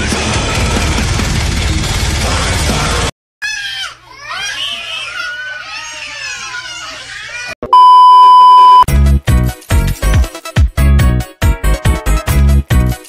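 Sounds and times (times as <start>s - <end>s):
music: 0.0s - 3.1s, 8.9s - 13.0s
test-tone beep: 7.7s - 8.9s.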